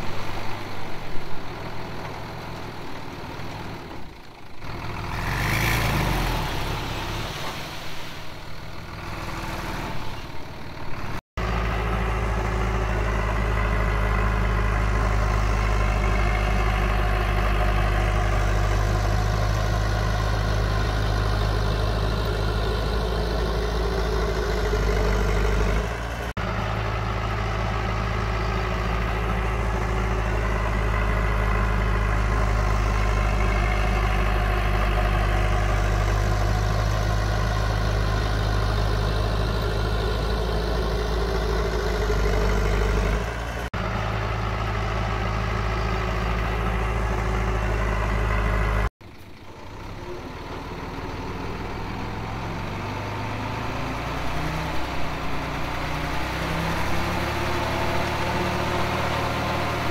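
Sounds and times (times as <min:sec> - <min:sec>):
heavy diesel machinery engine: 0:00.0 - 0:59.9.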